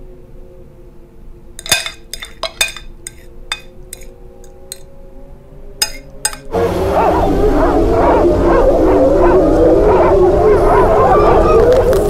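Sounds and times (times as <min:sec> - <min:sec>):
cutlery clinking on a plate: 0:01.6 - 0:04.8, 0:05.8 - 0:06.5.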